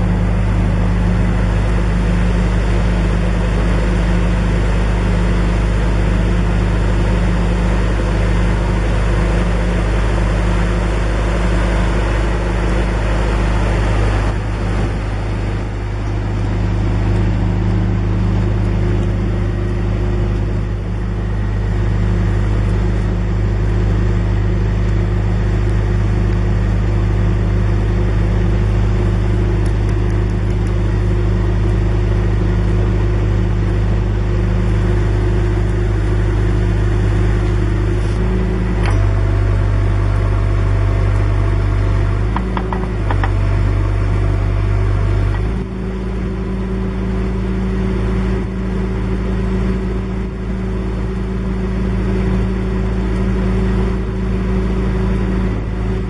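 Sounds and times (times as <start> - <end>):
diesel engine droning: 0.0 - 56.0.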